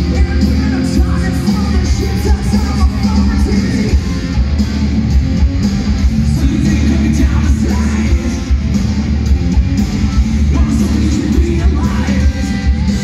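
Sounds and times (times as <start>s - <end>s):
man singing lead vocals: 0.0s - 4.2s, 6.2s - 8.6s, 10.4s - 13.0s
live rock band playing: 0.0s - 13.0s.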